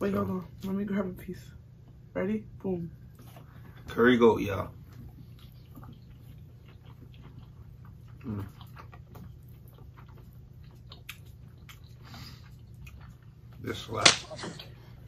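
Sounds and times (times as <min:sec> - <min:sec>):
low steady hum: 0:00.0 - 0:15.0
people chewing: 0:03.0 - 0:15.0.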